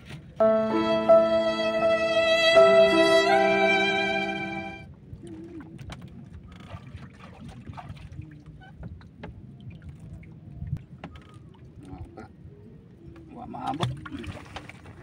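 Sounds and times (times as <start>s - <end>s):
water lapping at boat hull: 5.0s - 15.0s.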